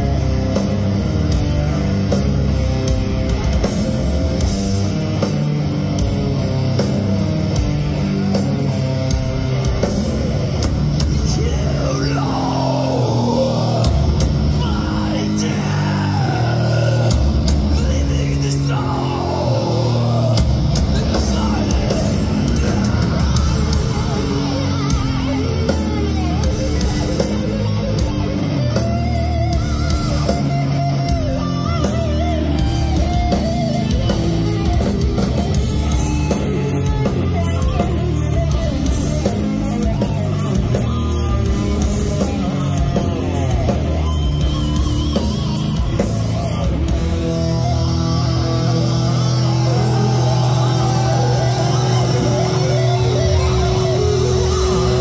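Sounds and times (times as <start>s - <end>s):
death metal band playing live: 0.0s - 55.0s.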